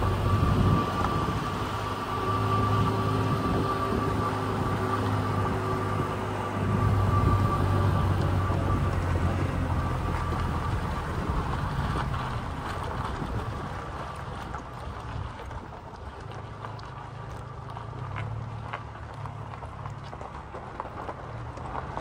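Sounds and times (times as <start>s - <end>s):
wind on microphone: 0.0s - 15.7s
truck engine hum: 0.0s - 22.0s
tyre noise on gravel: 0.0s - 22.0s.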